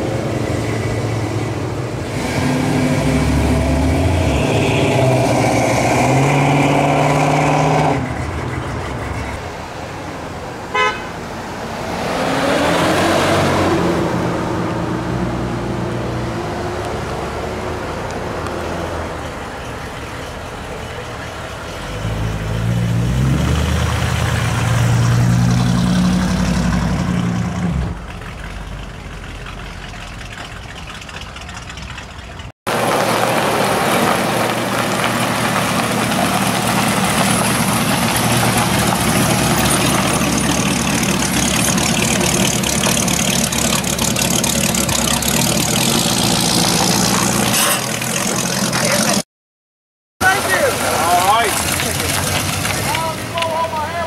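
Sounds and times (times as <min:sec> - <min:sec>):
car engine passing: 0:00.0 - 0:32.0, 0:32.7 - 0:49.2
car engine accelerating away: 0:02.0 - 0:09.1, 0:11.9 - 0:19.1, 0:21.8 - 0:29.6
car horn toot: 0:04.0 - 0:05.4, 0:10.7 - 0:11.2.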